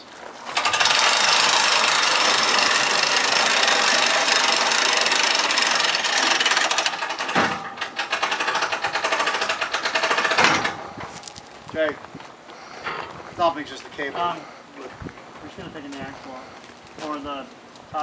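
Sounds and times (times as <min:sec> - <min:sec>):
winch ratchets clicking: 0:00.5 - 0:10.8.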